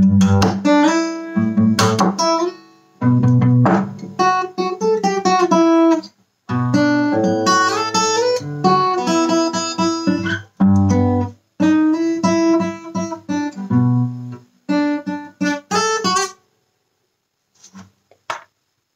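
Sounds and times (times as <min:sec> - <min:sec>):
acoustic guitar melody: 0:00.0 - 0:16.5.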